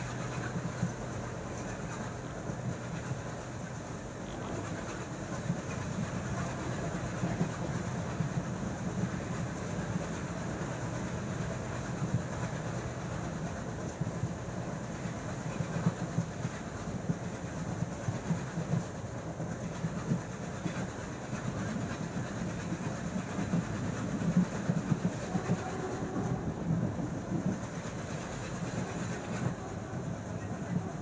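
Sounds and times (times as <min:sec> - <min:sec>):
train coach rumbling: 0:00.0 - 0:31.0.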